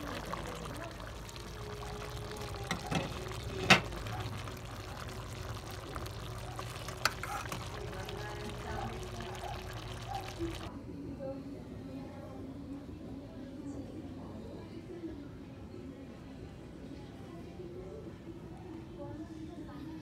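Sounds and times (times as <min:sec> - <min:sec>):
pot simmering bubbling: 0:00.0 - 0:10.7.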